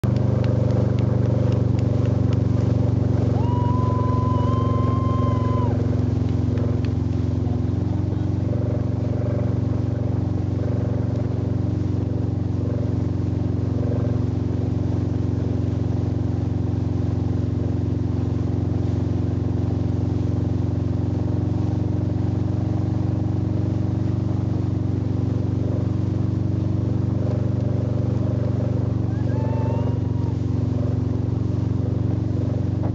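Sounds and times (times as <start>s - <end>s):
boat engine drone: 0.0s - 32.9s.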